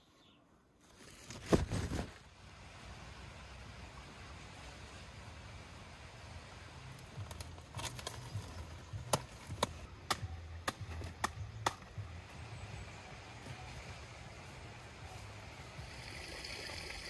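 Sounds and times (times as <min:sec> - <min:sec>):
leafy rustling: 0:00.8 - 0:02.5.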